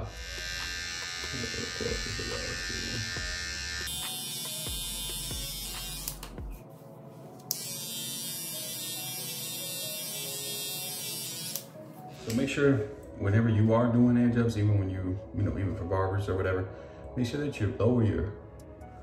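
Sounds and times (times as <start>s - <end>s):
electric hair trimmer buzzing: 0.0s - 6.6s, 7.5s - 11.8s.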